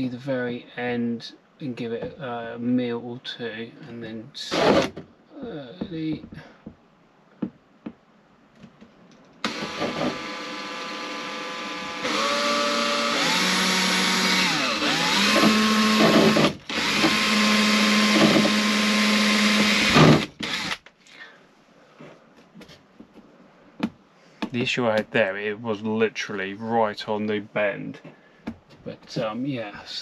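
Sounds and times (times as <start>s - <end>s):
electric drill whining: 9.4s - 20.8s.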